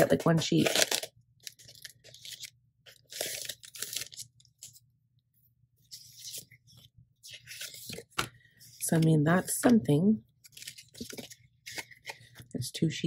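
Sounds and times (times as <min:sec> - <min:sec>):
plastic sleeves crinkling: 0:00.0 - 0:04.8, 0:10.4 - 0:12.4.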